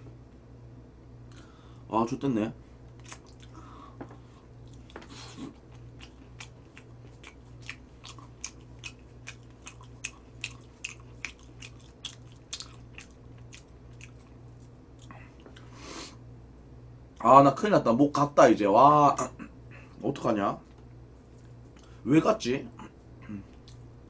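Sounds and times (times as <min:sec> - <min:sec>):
crunching fried chicken: 0:04.6 - 0:15.7.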